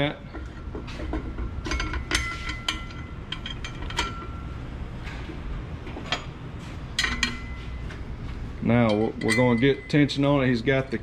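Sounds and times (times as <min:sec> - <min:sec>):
metal parts clinking together: 0:01.6 - 0:04.4, 0:08.8 - 0:10.0.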